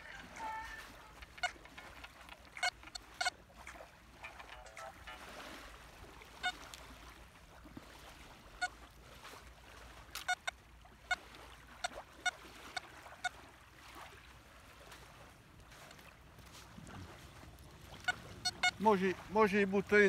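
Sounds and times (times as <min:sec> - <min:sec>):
metal detector beeps: 0:00.4 - 0:03.4, 0:06.4 - 0:06.6, 0:10.2 - 0:11.2, 0:18.0 - 0:18.8.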